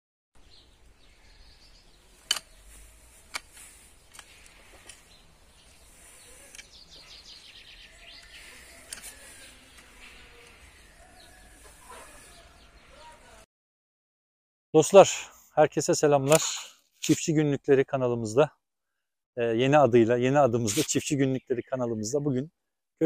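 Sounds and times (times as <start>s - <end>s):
birds chirping: 0.4s - 13.4s
mattock digging into compost: 2.1s - 6.9s.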